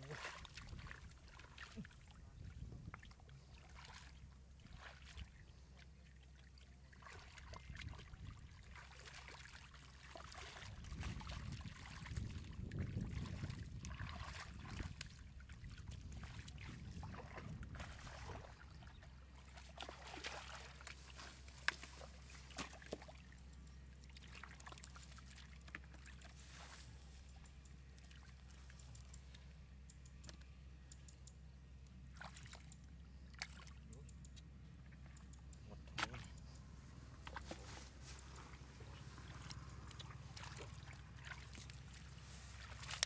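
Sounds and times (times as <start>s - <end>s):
low steady hum: 0.0s - 43.0s
hands splashing in shallow water: 19.4s - 23.3s, 37.2s - 43.0s.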